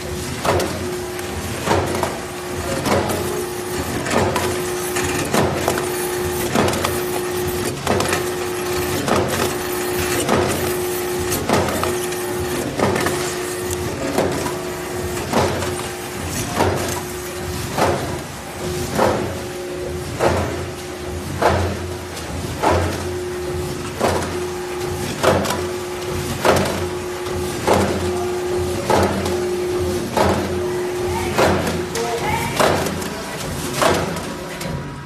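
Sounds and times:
machine hum: 0:00.0 - 0:35.0.

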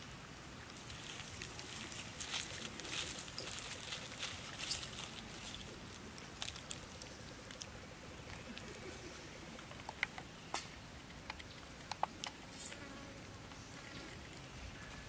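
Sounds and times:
monkey chewing food: 0:00.6 - 0:12.6.

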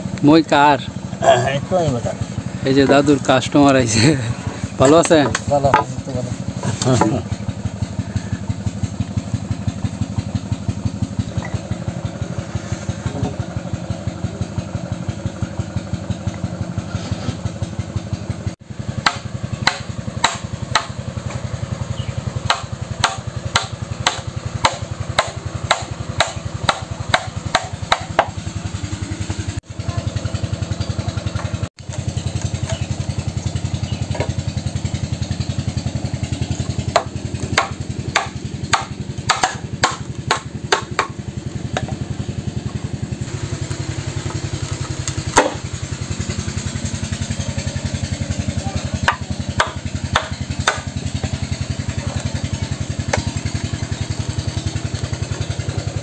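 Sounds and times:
small engine chugging: 0:00.0 - 0:56.0
hammer striking chisel: 0:04.8 - 0:05.9, 0:19.0 - 0:21.4, 0:22.4 - 0:28.4, 0:36.9 - 0:42.0, 0:45.3 - 0:45.6, 0:49.0 - 0:51.4.

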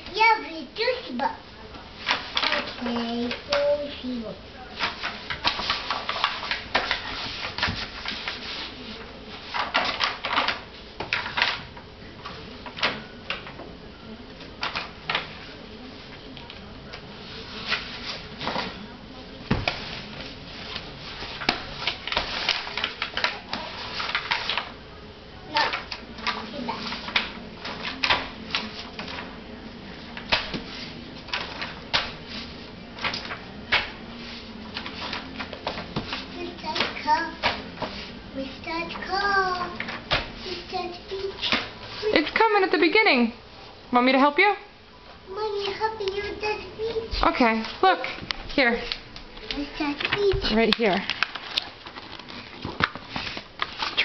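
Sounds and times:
book pages flipping: 0:04.8 - 0:11.6, 0:19.5 - 0:24.8, 0:25.5 - 0:29.4, 0:30.0 - 0:42.3, 0:45.6 - 0:54.0.

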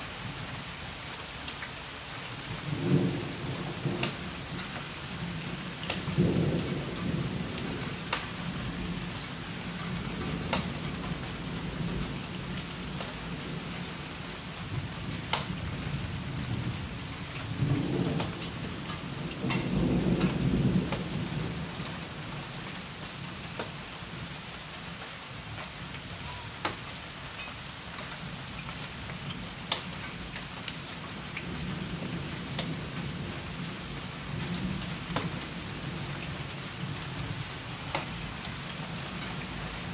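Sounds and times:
steady rain: 0:00.0 - 0:39.9
rolling thunder: 0:02.6 - 0:13.9, 0:14.7 - 0:21.9.

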